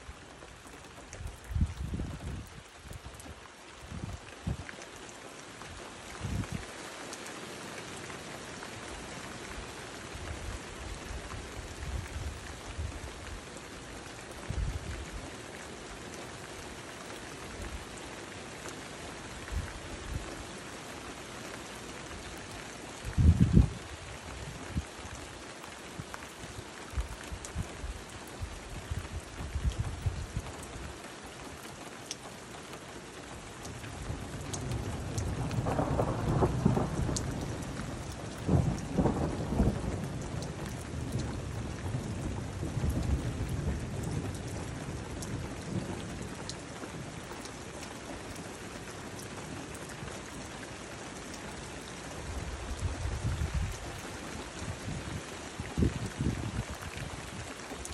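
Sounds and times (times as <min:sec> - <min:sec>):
close raindrops ticking: 0:00.0 - 0:57.9
heavy rain hissing: 0:32.2 - 0:46.4.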